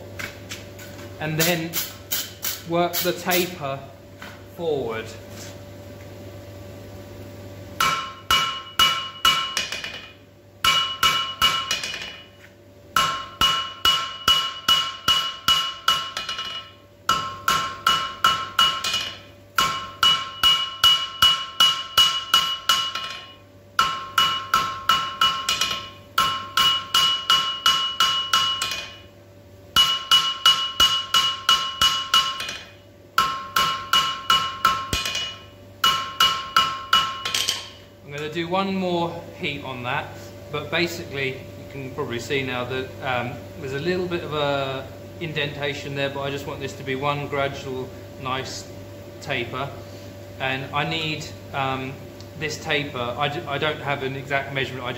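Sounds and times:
hammer ringing on anvil: 0:07.8 - 0:12.4, 0:13.0 - 0:29.1, 0:29.8 - 0:38.3.

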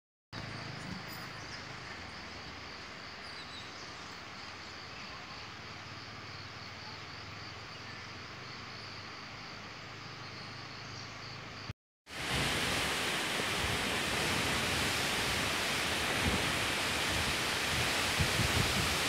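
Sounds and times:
insects chirring: 0:00.4 - 0:11.7.

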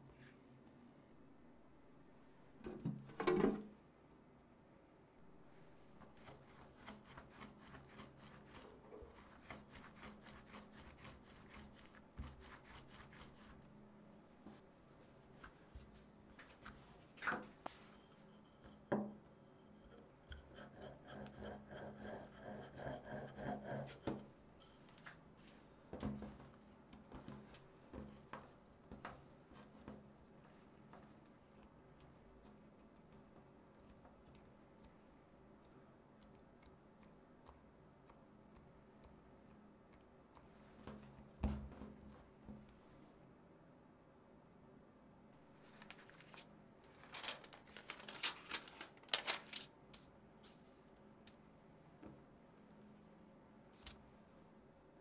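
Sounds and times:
rolling pin rubbing on dough: 0:06.0 - 0:13.6, 0:19.8 - 0:24.2.

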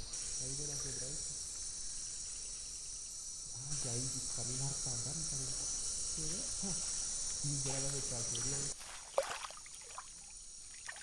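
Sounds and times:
insects chorus: 0:00.0 - 0:11.0
man talking: 0:07.4 - 0:08.8.

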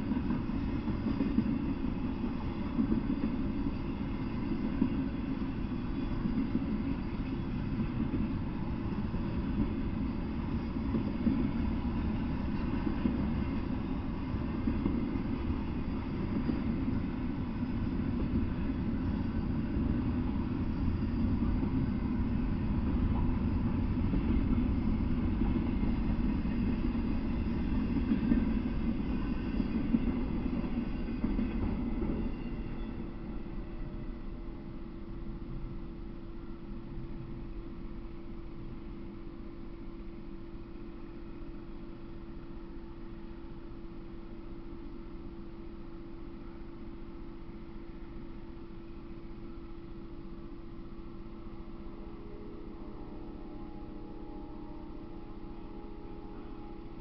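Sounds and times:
train wheels rumbling on rails: 0:00.0 - 0:45.4.

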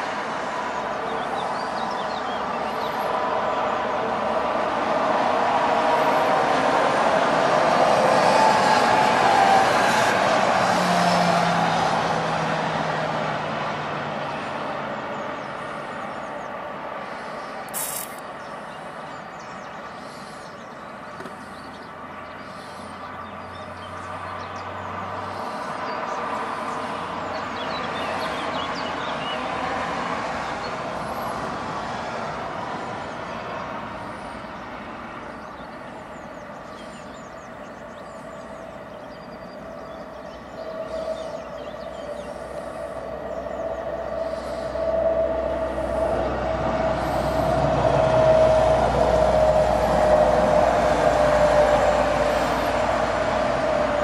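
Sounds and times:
distant road traffic rumble: 0:00.0 - 0:54.0
short sharp noise: 0:17.7 - 0:18.2.

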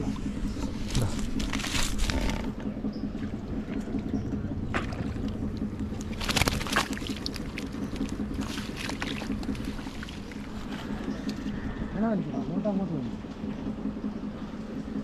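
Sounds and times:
steady low hum: 0:00.0 - 0:15.0
fish thrashing and splashing: 0:00.4 - 0:03.4, 0:04.6 - 0:11.4.

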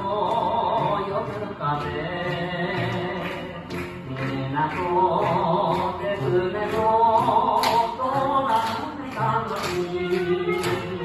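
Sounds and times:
person singing: 0:00.0 - 0:11.0.

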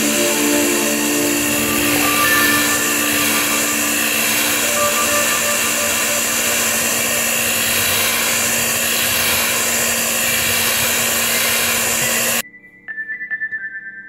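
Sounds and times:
soft chiming music: 0:00.0 - 0:08.8
electric hand mixer running: 0:00.0 - 0:12.4.

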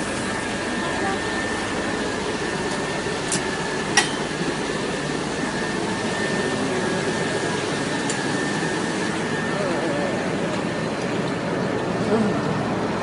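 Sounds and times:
engine drone: 0:00.0 - 0:13.0.

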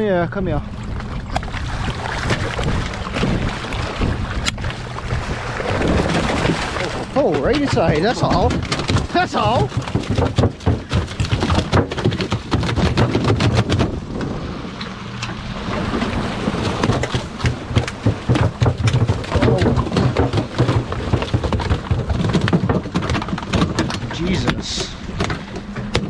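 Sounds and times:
fish tail drumming against deck: 0:05.8 - 0:14.3, 0:16.6 - 0:26.0.

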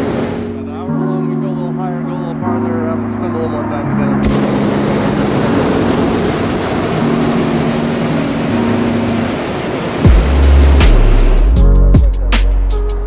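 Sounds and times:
propane burner roaring: 0:00.0 - 0:00.8, 0:04.2 - 0:11.5
music with deep bass: 0:10.0 - 0:13.0.

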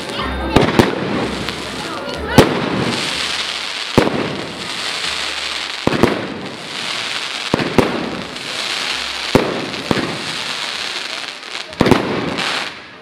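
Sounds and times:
fireworks crackling: 0:00.0 - 0:13.0
firework shells bursting: 0:02.4 - 0:10.6.

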